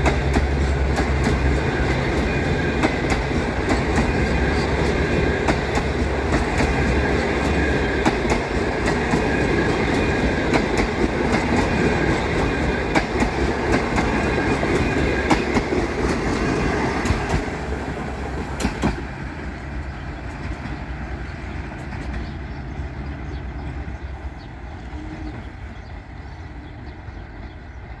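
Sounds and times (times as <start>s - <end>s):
train wheels rumbling on rails: 0.0s - 28.0s.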